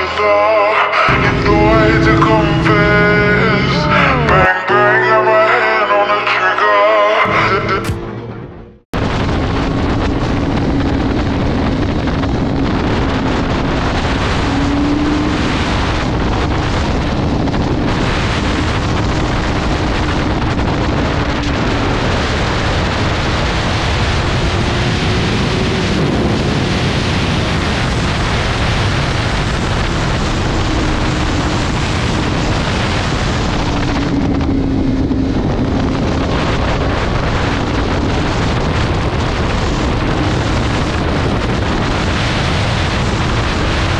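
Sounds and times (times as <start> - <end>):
motorcycle engine cruising: 1.1 - 4.5, 7.3 - 43.9
wind rush on microphone: 8.9 - 43.9.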